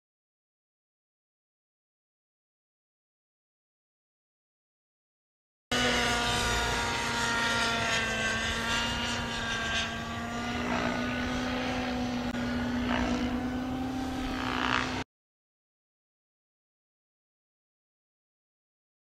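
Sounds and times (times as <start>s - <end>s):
model helicopter engine drone: 5.7s - 15.1s.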